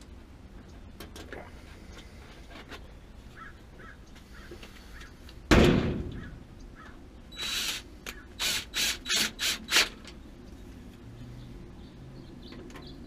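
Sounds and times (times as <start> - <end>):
loud thump: 5.5 - 6.3.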